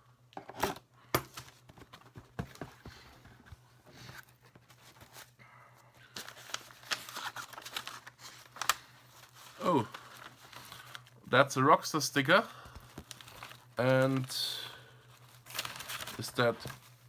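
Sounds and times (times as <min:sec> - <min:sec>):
cardboard and paper rustling: 0:01.3 - 0:05.4, 0:06.1 - 0:11.1, 0:12.7 - 0:17.0.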